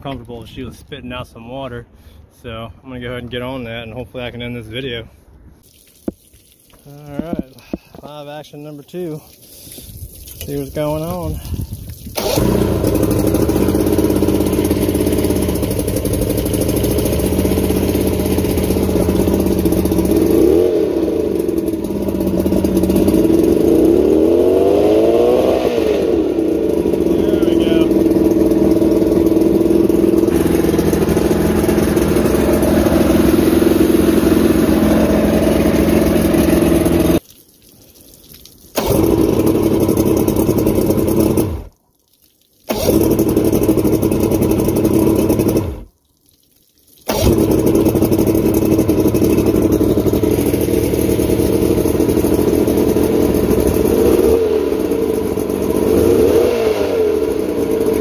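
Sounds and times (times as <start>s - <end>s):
outboard motor running: 9.5s - 37.2s, 38.8s - 41.7s, 42.7s - 45.9s, 47.1s - 58.0s.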